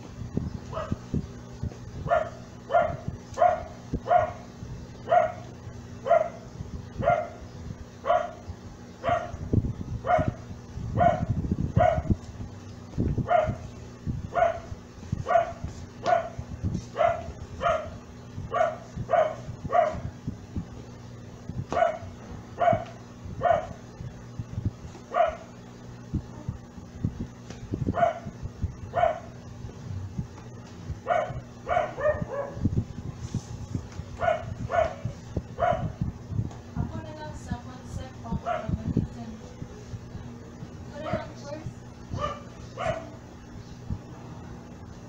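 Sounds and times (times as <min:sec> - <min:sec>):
low hum: 0:00.0 - 0:45.0
dog barking: 0:00.7 - 0:01.0, 0:02.0 - 0:07.4, 0:08.0 - 0:08.4, 0:09.0 - 0:09.4, 0:10.0 - 0:10.4, 0:11.0 - 0:12.2, 0:13.2 - 0:13.6, 0:14.3 - 0:20.1, 0:21.7 - 0:23.8, 0:25.1 - 0:25.5, 0:27.9 - 0:29.4, 0:31.0 - 0:32.6, 0:34.2 - 0:36.0, 0:38.4 - 0:38.8, 0:42.1 - 0:43.2.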